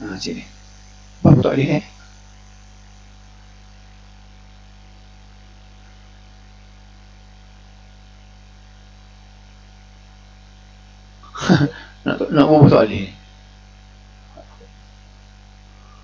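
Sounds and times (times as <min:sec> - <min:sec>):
low electrical hum: 0:00.0 - 0:16.0
faint hiss: 0:15.6 - 0:16.0.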